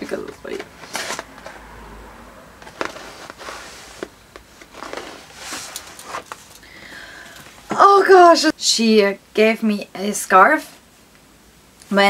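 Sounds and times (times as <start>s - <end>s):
paper and card rustling: 0.0s - 1.7s, 2.6s - 6.7s.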